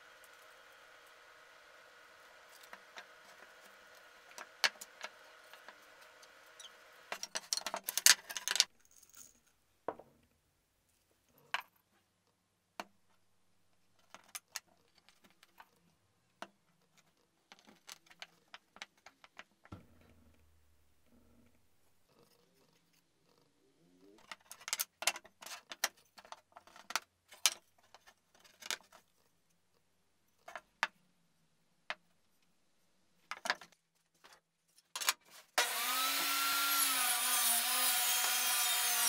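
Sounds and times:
wood pieces knocking on bench: 0:09.9 - 0:10.2.

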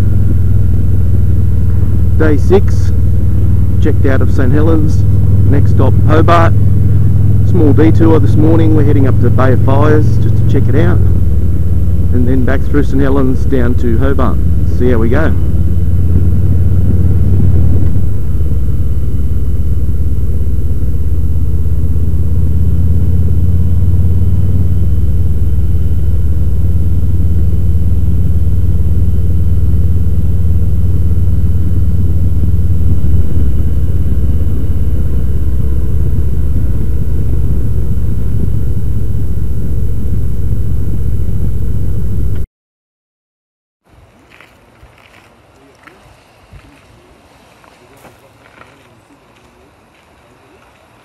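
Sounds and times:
motorcycle engine rumble: 0:00.0 - 0:42.5, 0:43.9 - 0:51.0
wind rush on microphone: 0:14.5 - 0:19.1.

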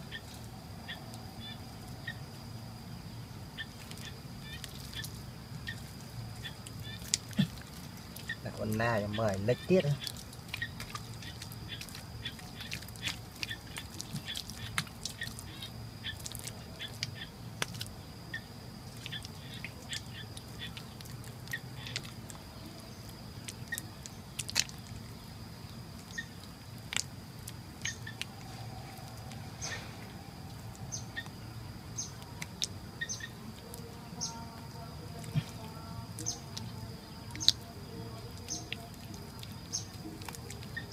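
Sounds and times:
wet mud squelching under hand: 0:03.6 - 0:17.9.

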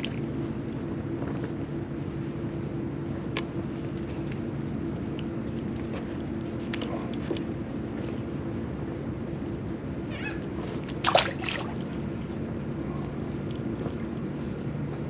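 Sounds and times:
water noise: 0:11.0 - 0:12.2.

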